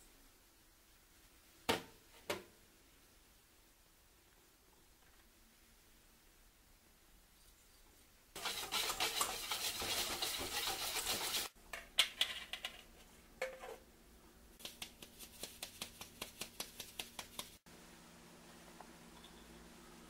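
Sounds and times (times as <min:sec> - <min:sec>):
whisk scratching in metal bowl: 0:08.4 - 0:11.5.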